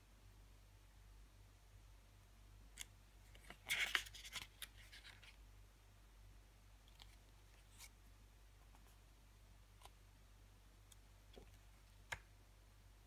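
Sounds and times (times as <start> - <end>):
paper pages rustling: 3.3 - 5.4.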